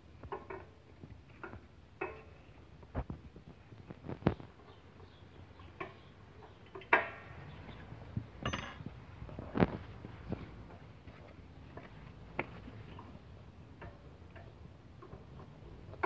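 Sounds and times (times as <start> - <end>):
light metallic clink: 8.4 - 8.9.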